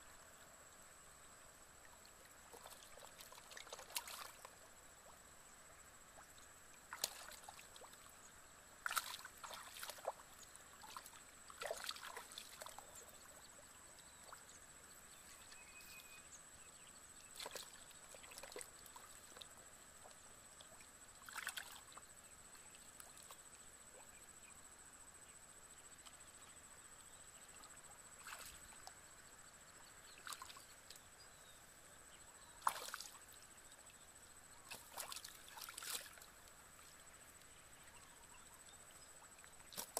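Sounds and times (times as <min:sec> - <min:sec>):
hands splashing in muddy water: 0:02.5 - 0:04.4, 0:06.9 - 0:08.0, 0:08.8 - 0:10.2, 0:10.8 - 0:12.8, 0:21.2 - 0:22.0, 0:32.6 - 0:33.2, 0:34.7 - 0:36.2.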